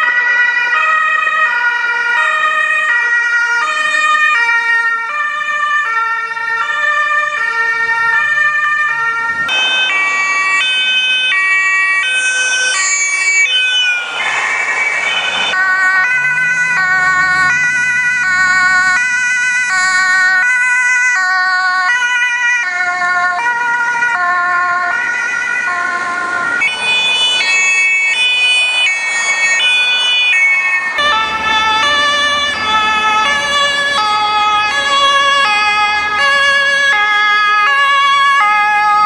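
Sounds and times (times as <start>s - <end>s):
police two-tone siren: 0.0s - 39.0s.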